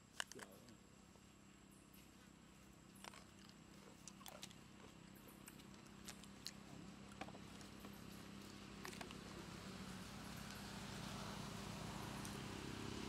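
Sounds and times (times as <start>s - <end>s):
faint low hum: 0.0s - 13.0s
small clicks and ticks: 2.9s - 9.2s, 12.2s - 12.4s.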